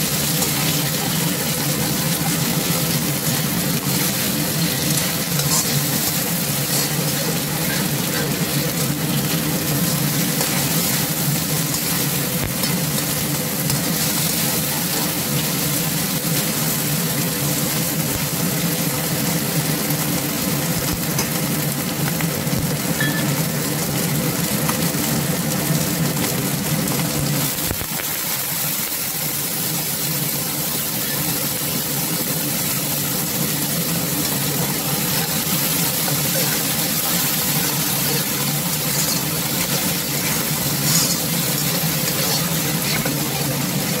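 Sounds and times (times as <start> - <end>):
meat sizzling in a wok: 0.0 - 44.0
metal spatula scraping a pan: 0.1 - 15.2, 34.8 - 44.0.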